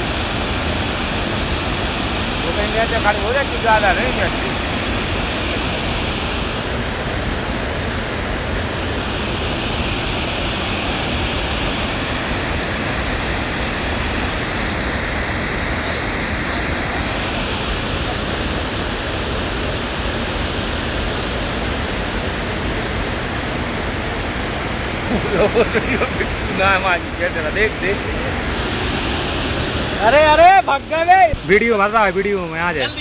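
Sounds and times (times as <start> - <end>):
water rushing over a weir: 0.0 - 33.0.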